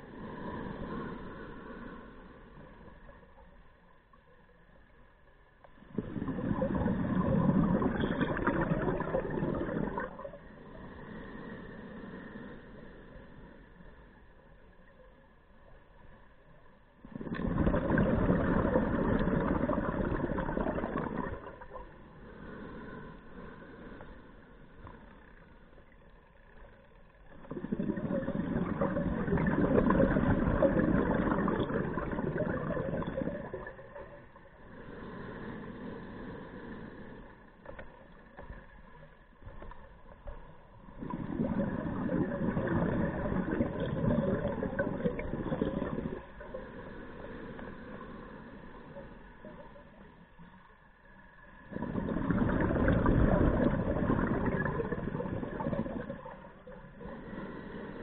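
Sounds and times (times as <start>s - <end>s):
underwater exhalation bubbling: 5.9s - 10.4s, 17.1s - 21.9s, 27.3s - 34.1s, 40.9s - 46.6s, 51.6s - 56.5s
regulator inhalations: 34.6s - 38.0s, 56.8s - 58.0s.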